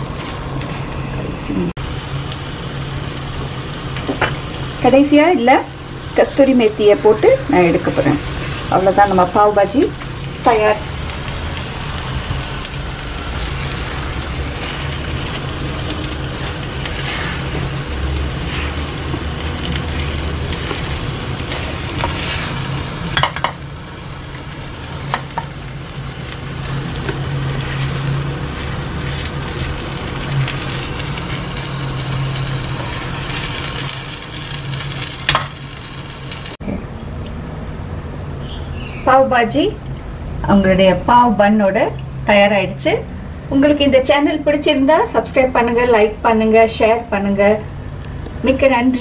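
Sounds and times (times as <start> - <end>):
vegetables sizzling in a pan: 1.8 - 36.6
spatula scraping a pan: 16.4 - 17.7.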